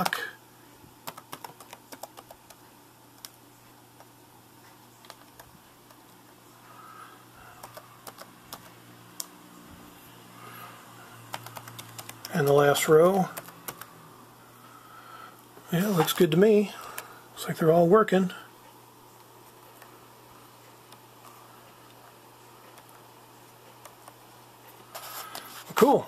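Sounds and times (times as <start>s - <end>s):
laptop keys clicking: 1.0s - 2.6s, 3.2s - 3.4s, 5.0s - 6.2s, 7.6s - 9.3s, 11.3s - 13.9s.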